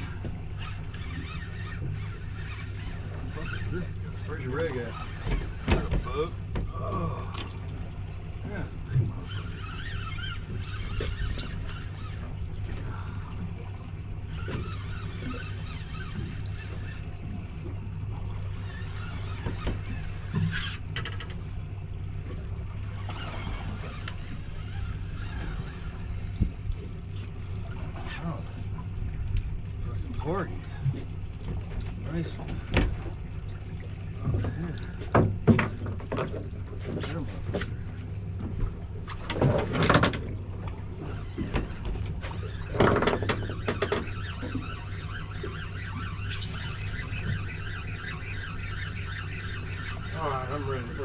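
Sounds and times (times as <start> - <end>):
outboard motor idling: 0.0 - 51.0.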